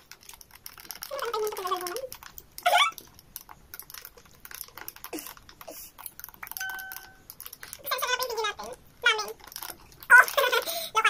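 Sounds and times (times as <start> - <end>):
chewing: 0.0 - 8.0, 9.3 - 10.1.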